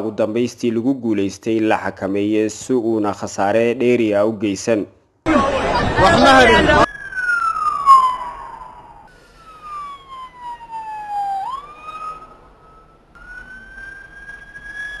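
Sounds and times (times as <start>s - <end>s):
emergency siren wailing: 5.3s - 15.0s.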